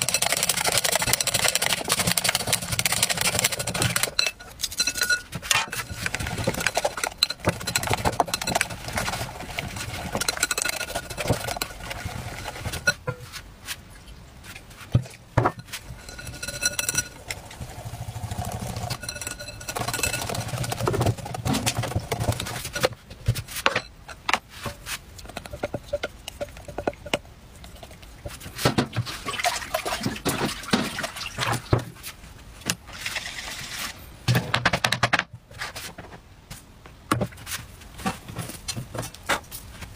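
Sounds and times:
whisk clicking against glass bowl: 0.0 - 5.3, 18.7 - 22.5
wet batter sounds: 0.0 - 23.6, 24.4 - 32.2.

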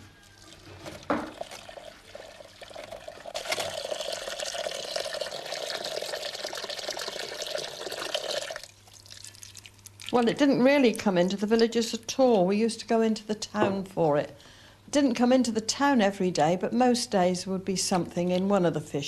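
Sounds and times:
water pouring: 0.2 - 10.4.

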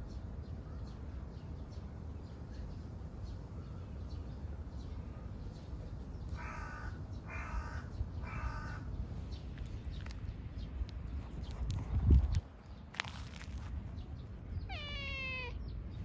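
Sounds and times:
crow cawing: 6.4 - 8.9.

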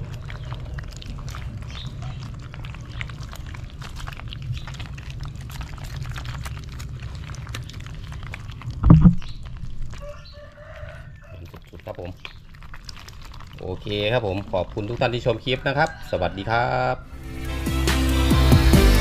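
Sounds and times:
fish splashing in water: 0.0 - 16.4
steady low rumble: 6.6 - 10.0
dull thump: 8.8 - 9.2.

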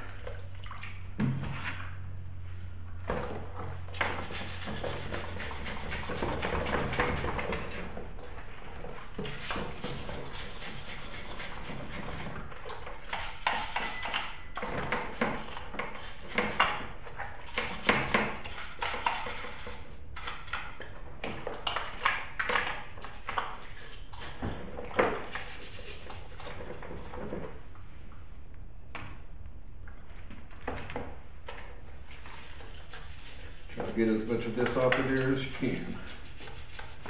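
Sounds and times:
brush scrubbing plastic housing: 4.0 - 7.9, 9.2 - 16.7, 32.1 - 37.0.

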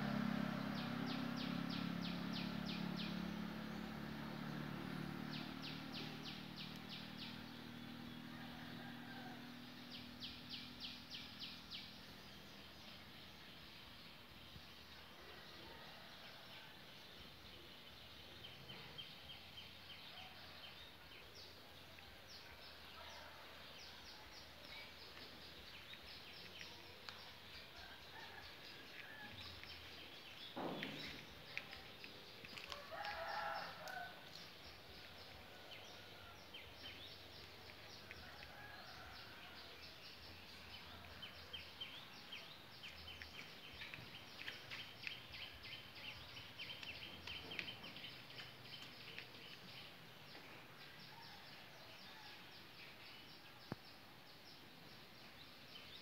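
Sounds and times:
rooster crowing: 8.2 - 9.7, 32.6 - 34.3, 38.1 - 40.0
small birds chirping: 17.2 - 56.0.

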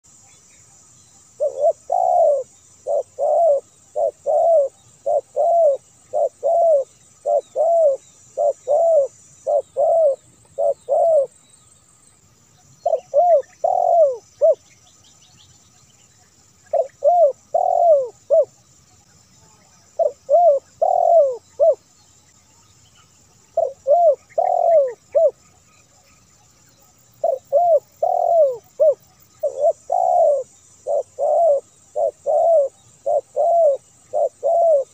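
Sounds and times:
dove cooing: 1.4 - 11.3, 12.8 - 14.6, 16.7 - 18.6, 19.9 - 21.8, 23.5 - 25.5, 27.2 - 34.9.

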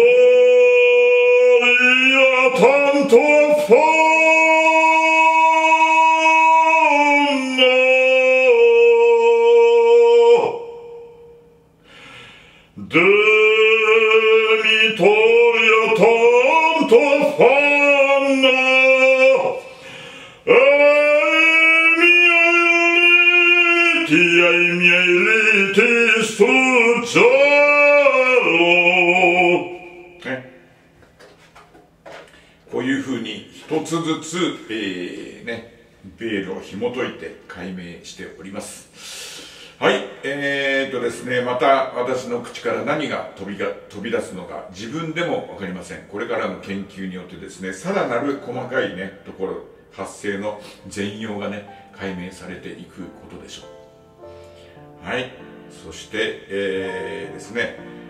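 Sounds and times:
man singing operatically: 0.0 - 11.5, 12.8 - 30.6, 55.3 - 58.0.

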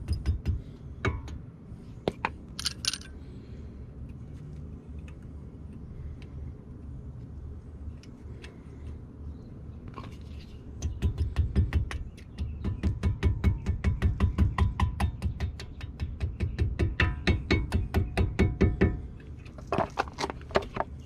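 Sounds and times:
faint rattle: 2.6 - 3.2.

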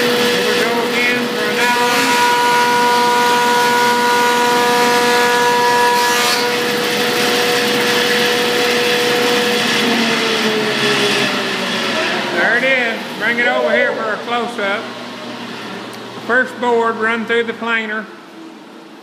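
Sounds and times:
wood planer cutting board: 0.0 - 13.6.

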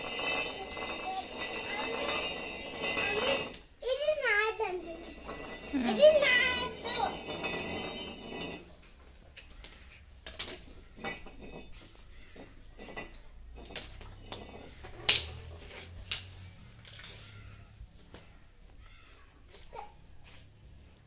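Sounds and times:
stick and toy tapping on tiles: 9.0 - 10.8.

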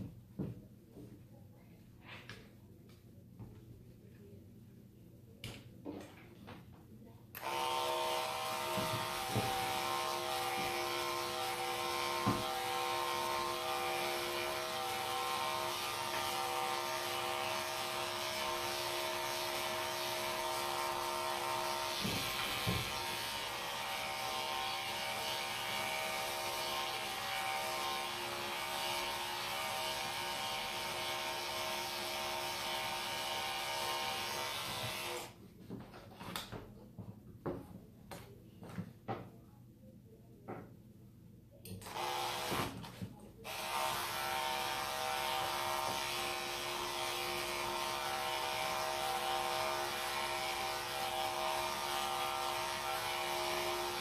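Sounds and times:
electric clippers running: 7.4 - 35.3, 41.8 - 54.0.

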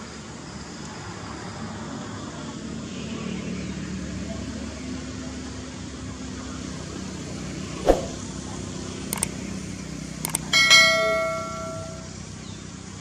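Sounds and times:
mouse clicks: 10.3 - 10.5
bright bell chime: 10.3 - 12.2.

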